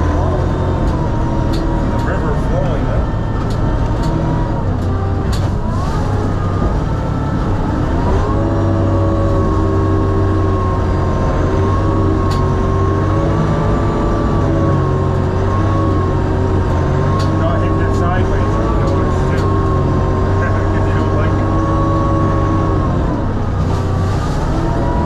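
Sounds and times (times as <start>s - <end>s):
diesel engine running: 0.0s - 25.0s.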